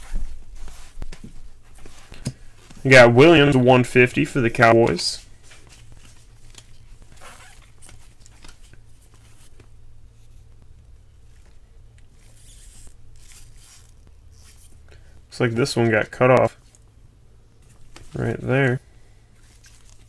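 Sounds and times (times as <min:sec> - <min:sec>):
steady low hum: 0:00.0 - 0:20.0
cards sliding and flipping: 0:05.4 - 0:10.6, 0:11.4 - 0:14.8.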